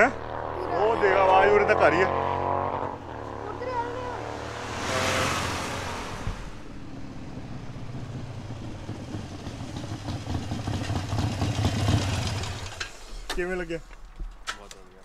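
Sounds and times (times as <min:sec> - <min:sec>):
motorcycle exhaust rumble: 0:06.3 - 0:12.8.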